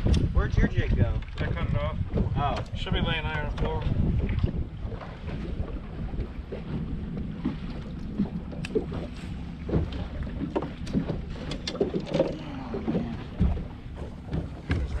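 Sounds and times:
low rumble: 0.0 - 15.0
waves lapping against boat hull: 0.0 - 15.0
wind buffeting microphone: 0.0 - 15.0.

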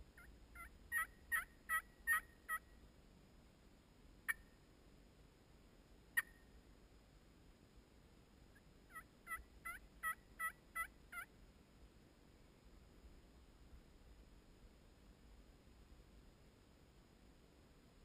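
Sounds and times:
turkey calling: 0.2 - 2.6, 8.9 - 11.3
turkey yelps: 0.2 - 2.6, 8.9 - 11.3.

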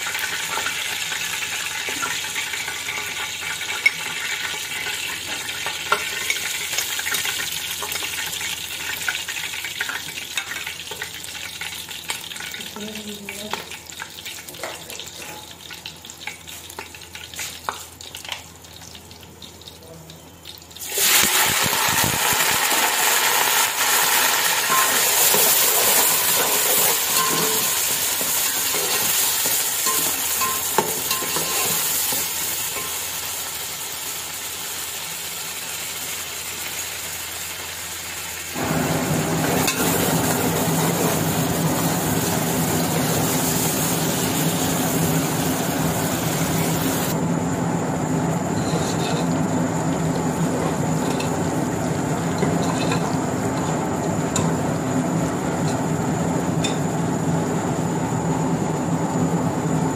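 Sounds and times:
onions sizzling in hot oil: 0.0 - 59.9
metal spoon stirring in pot: 24.7 - 32.9, 48.6 - 49.3, 52.4 - 53.1.

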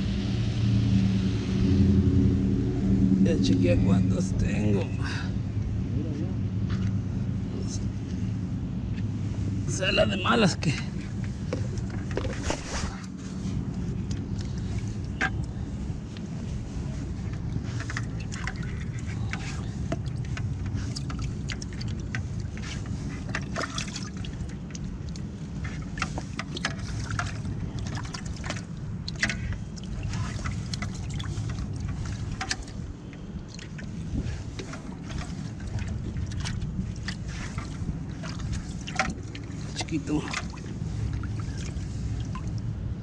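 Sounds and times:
steady low rumble: 0.0 - 43.0
water splashing in a bucket: 9.7 - 16.0, 16.6 - 43.0.

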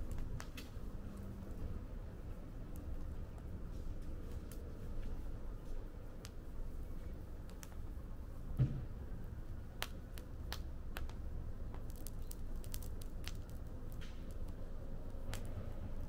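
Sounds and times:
fire crackling and popping: 0.0 - 16.0
low fire rumble: 0.0 - 16.0
dull thump: 8.6 - 8.9.

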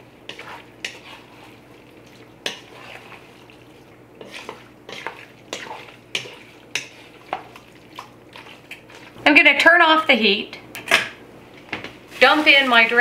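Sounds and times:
wooden spoon scraping a pot: 0.2 - 3.4, 4.2 - 7.8.

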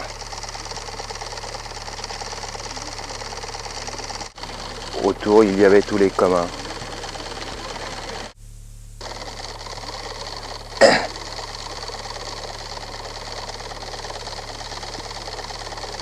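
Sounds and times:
low electrical hum: 0.0 - 16.0
recording hiss: 7.4 - 13.1.

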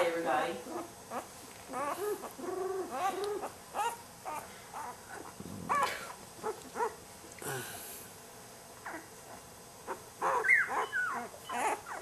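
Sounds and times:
puppy whimpering squeals: 0.7 - 7.0, 8.8 - 9.1, 9.9 - 12.0.

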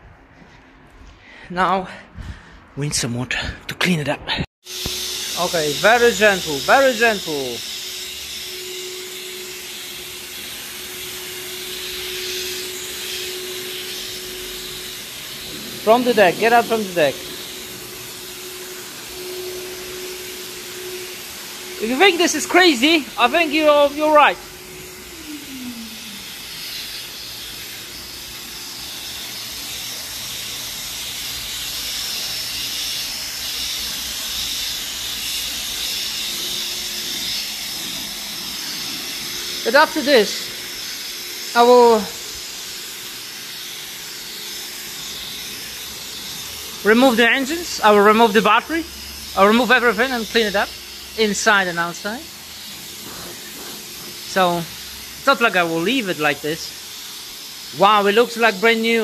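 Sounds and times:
pressure washer water jet hissing: 4.6 - 59.0
steady hum: 4.7 - 51.8.

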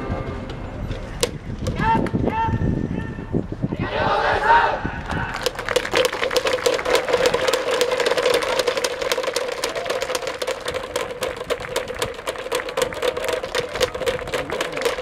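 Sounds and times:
spectators applauding: 5.3 - 15.0.

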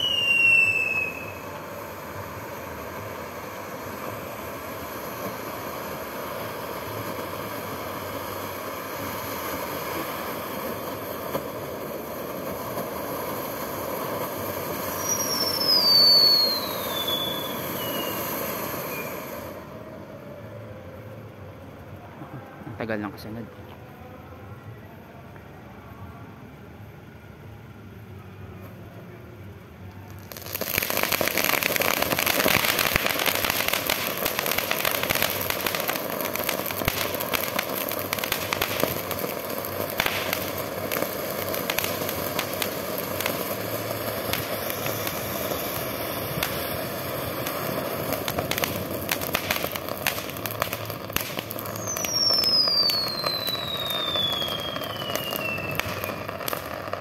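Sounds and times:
falling firework whistle: 0.0 - 22.8, 29.9 - 57.0
firework crackles: 0.0 - 57.0
firework fountain hissing: 0.0 - 57.0.

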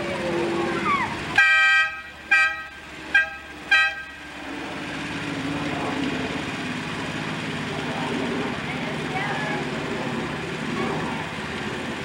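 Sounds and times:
horn honking: 1.3 - 4.3.

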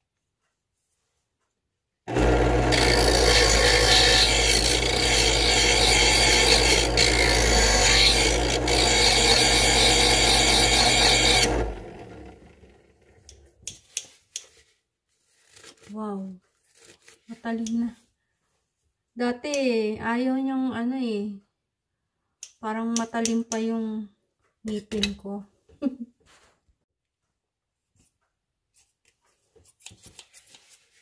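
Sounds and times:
blade grinding on abrasive wheel: 2.1 - 12.7
knife sharpener motor humming: 2.1 - 13.5.

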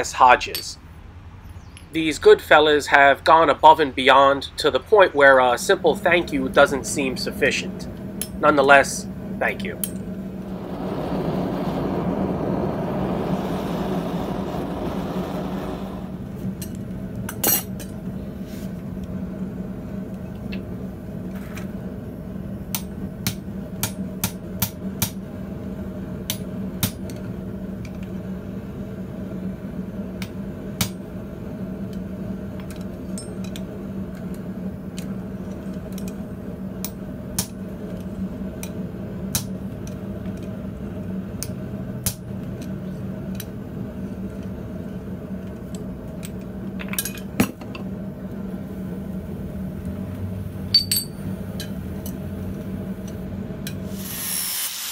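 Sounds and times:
steady low hum: 0.0 - 54.1
hammer striking hot metal: 50.7 - 51.8.

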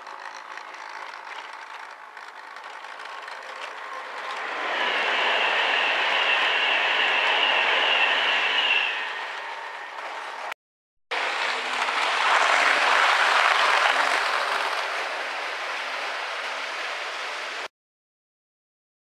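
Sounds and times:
model train motor whine: 0.0 - 10.5
small wheels rattling on rail: 0.0 - 10.5, 11.2 - 17.7.

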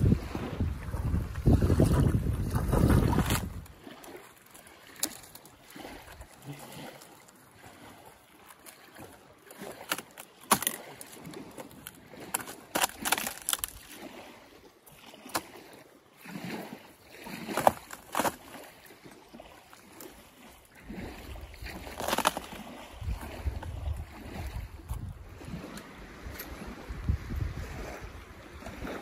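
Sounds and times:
rotten wood cracking and snapping: 2.5 - 7.2, 8.6 - 14.3, 17.1 - 18.7, 20.9 - 25.1.

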